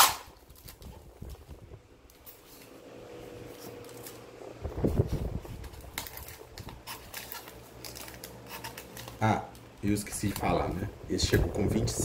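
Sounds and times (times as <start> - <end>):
packaging rustling: 3.4 - 4.3, 4.9 - 10.6.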